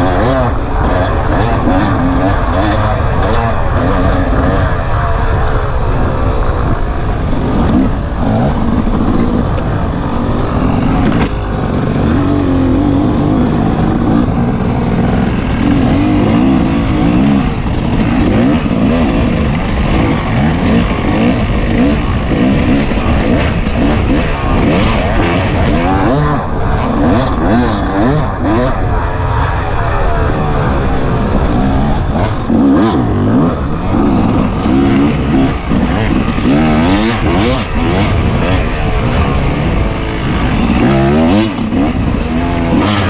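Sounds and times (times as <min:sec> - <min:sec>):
dirt bike engine: 0:00.0 - 0:43.0
wind on microphone: 0:00.0 - 0:43.0.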